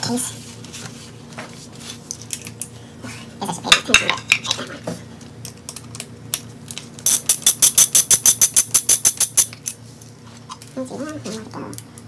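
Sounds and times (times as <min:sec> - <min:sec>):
ratchet wrench clicking rapidly: 0:07.0 - 0:09.6
tools and parts tapping: 0:07.1 - 0:09.8.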